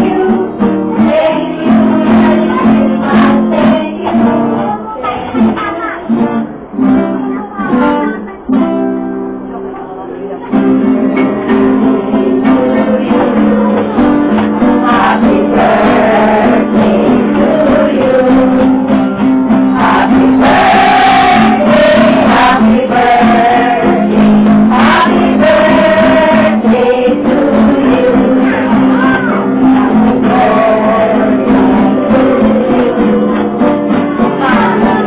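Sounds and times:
group singing a carol: 0.0s - 5.2s, 10.5s - 35.0s
strummed acoustic guitar: 0.0s - 35.0s.

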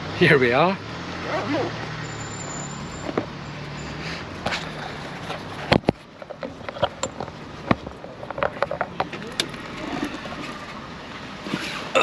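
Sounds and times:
microphone handling clicks and knocks: 4.4s - 10.2s.

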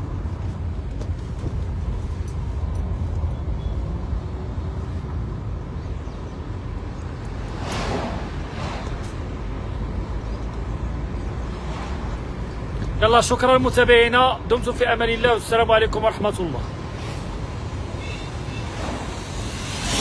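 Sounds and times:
car road noise rumble: 0.0s - 14.6s, 16.2s - 20.0s
passing lorry whoosh: 6.6s - 12.7s, 16.8s - 20.0s.

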